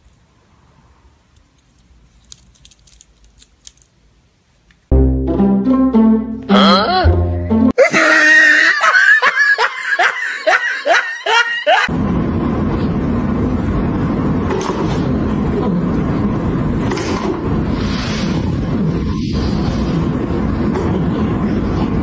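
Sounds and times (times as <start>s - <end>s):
music: 4.9s - 7.8s
bursts of laughter: 7.8s - 11.9s.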